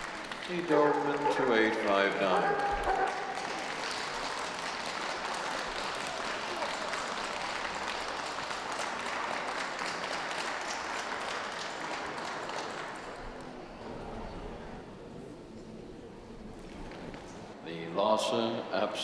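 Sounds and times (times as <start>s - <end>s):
audience applauding: 0.0s - 13.8s.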